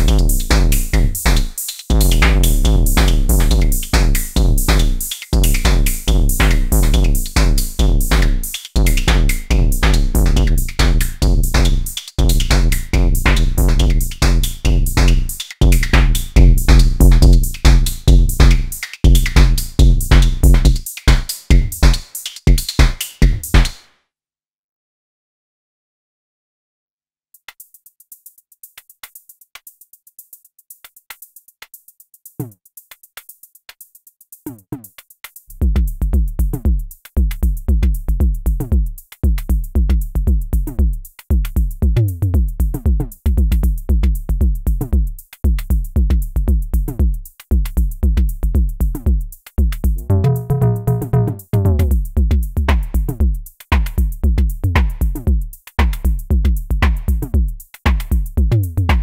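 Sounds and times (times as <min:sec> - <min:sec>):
drum machine bass with falling pitch: 0:00.0 - 0:23.7, 0:35.5 - 0:59.0
hi-hat ticks: 0:00.0 - 0:23.8, 0:27.4 - 0:59.0
ringing pitched tone: 0:50.0 - 0:51.4.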